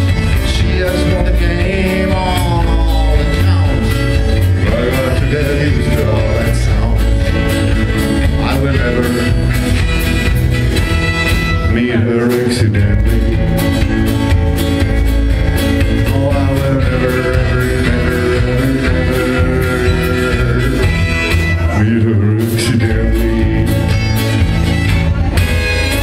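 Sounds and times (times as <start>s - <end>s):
drums: 0.0s - 26.0s
electric guitar: 0.0s - 26.0s
strummed acoustic guitar: 0.0s - 26.0s
fiddle: 3.1s - 12.1s, 23.3s - 26.0s.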